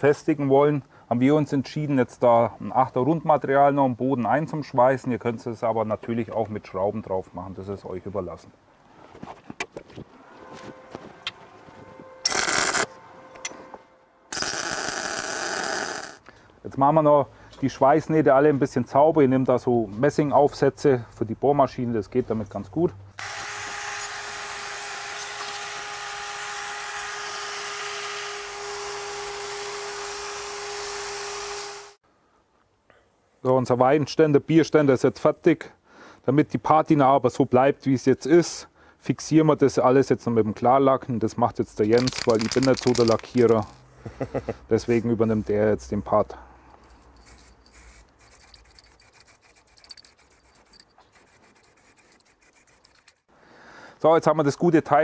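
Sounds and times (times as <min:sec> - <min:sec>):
drill motor whine: 0:12.2 - 0:12.9, 0:14.3 - 0:16.2, 0:23.2 - 0:32.0
wire brush scratching metal: 0:12.2 - 0:12.9, 0:46.9 - 0:53.3.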